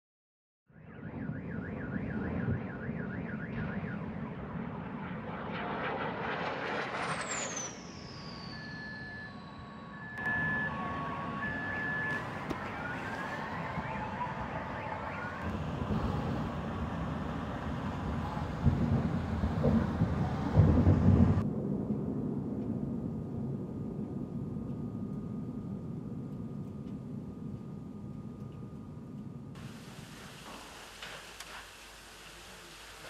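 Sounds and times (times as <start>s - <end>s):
low rumble: 3.6s - 29.6s
high falling whistle: 5.9s - 19.0s
car alarms sounding: 9.0s - 17.2s.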